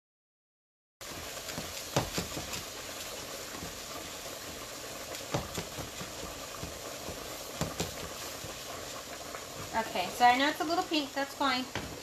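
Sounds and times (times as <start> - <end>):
meat sizzling in a frying pan: 1.0 - 12.0
spatula knocking against pan: 1.5 - 2.6, 5.3 - 8.7.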